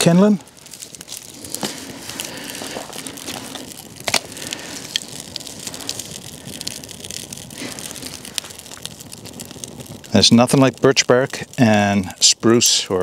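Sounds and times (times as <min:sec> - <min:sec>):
fire crackling and popping: 0:00.0 - 0:13.0
loud snap of burning wood: 0:00.0 - 0:13.0.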